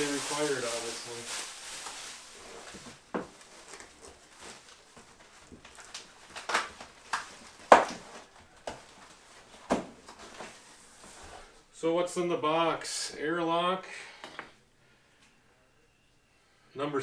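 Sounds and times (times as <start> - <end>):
rustling in cardboard box: 0.0 - 6.4.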